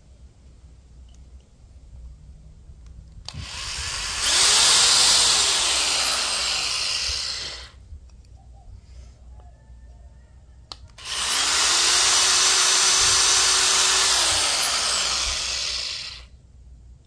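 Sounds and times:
electric drill boring into wood: 0:03.3 - 0:07.8, 0:11.0 - 0:16.3.

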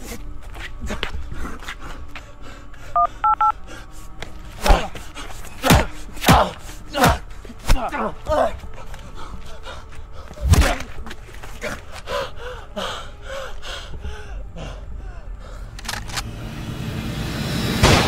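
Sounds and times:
person gasping and groaning: 0:11.6 - 0:15.8.

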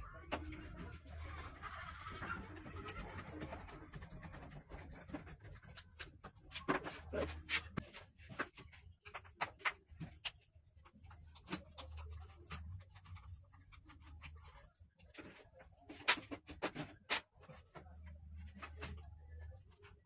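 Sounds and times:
plastic parts clicking and knocking: 0:02.5 - 0:20.0.

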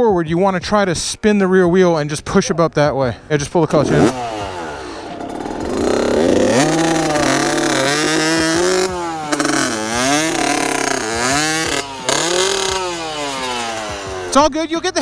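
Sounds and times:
wheel spinning in loose dirt: 0:03.7 - 0:14.4
dirt bike engine revving: 0:03.7 - 0:14.5.

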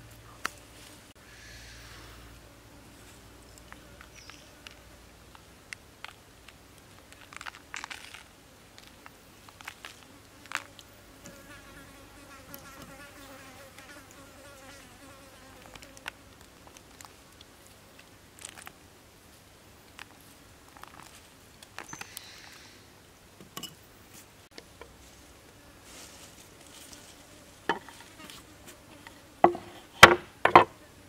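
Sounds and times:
insect buzzing: 0:00.4 - 0:05.1, 0:07.1 - 0:17.0, 0:25.5 - 0:29.7.

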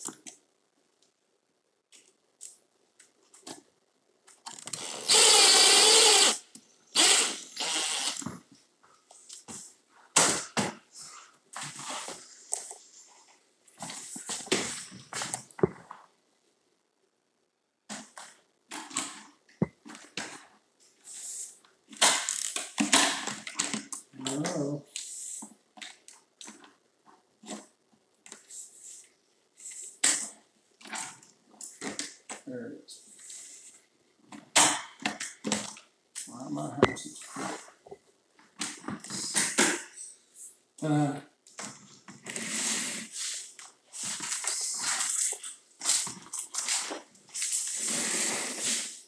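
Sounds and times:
impact driver driving screw: 0:04.7 - 0:06.4.

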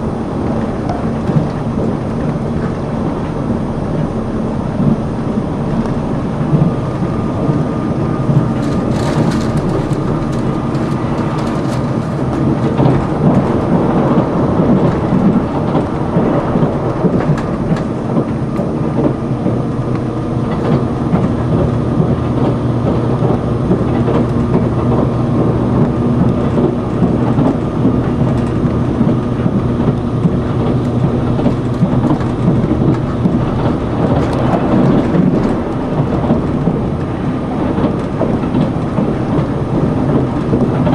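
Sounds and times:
train wheels rumbling on rail: 0:00.0 - 0:40.9.

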